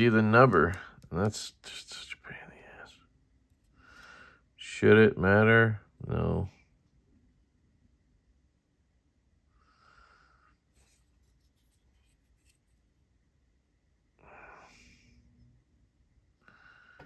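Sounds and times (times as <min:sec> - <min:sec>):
faint breaths: 0:02.2 - 0:04.6, 0:09.4 - 0:11.0, 0:14.2 - 0:15.6, 0:16.3 - 0:17.0.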